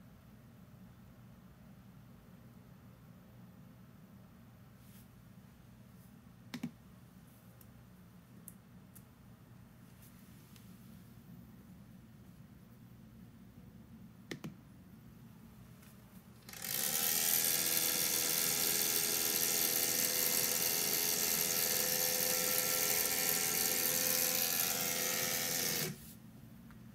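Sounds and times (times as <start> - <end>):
feeder motor whirring: 16.4 - 26.0.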